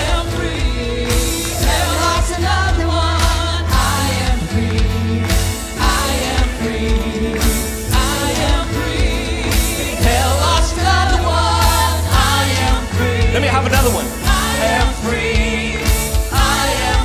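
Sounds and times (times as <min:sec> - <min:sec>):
live band playing gospel: 0:00.0 - 0:17.0
voices singing: 0:00.0 - 0:17.0.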